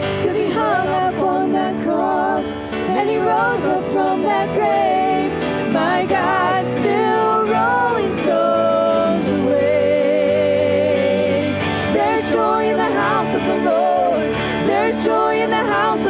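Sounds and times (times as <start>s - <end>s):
singers holding long notes: 0.0s - 16.0s
worship band playing: 0.0s - 16.0s.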